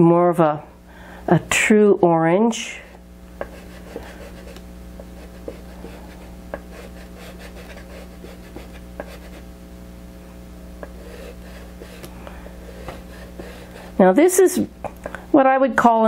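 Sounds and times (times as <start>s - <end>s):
low hum: 0.0s - 15.3s
pastel scratching on paper: 3.4s - 9.4s, 10.8s - 14.0s.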